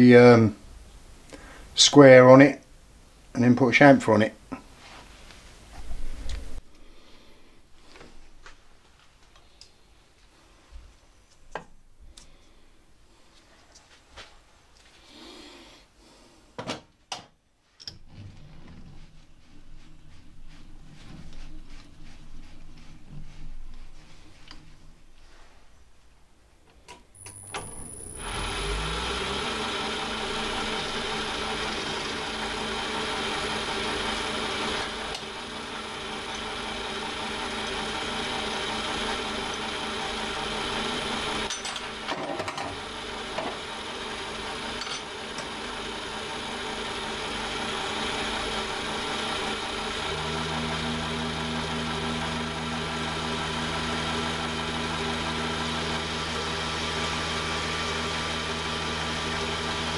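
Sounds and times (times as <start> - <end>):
lathe motor running: 27.2 - 59.9.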